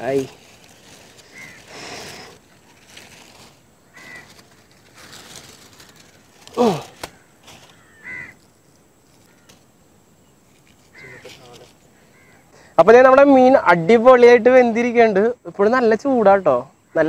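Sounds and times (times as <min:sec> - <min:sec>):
foil and leaf rustling: 0:00.0 - 0:09.7, 0:10.4 - 0:11.8
crows cawing: 0:00.9 - 0:09.7, 0:10.8 - 0:12.8.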